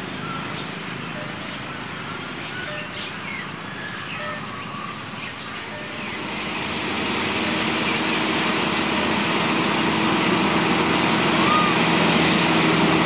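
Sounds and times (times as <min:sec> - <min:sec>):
diesel locomotive engine: 0:00.0 - 0:13.0
steady low hum: 0:02.8 - 0:13.0.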